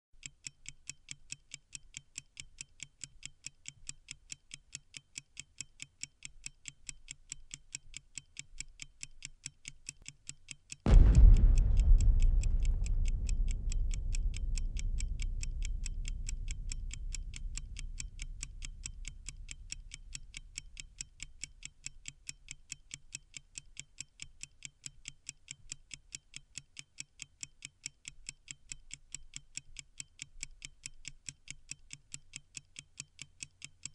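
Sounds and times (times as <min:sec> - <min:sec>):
clock ticking: 0:00.2 - 0:29.4
deep boom: 0:10.9 - 0:21.0.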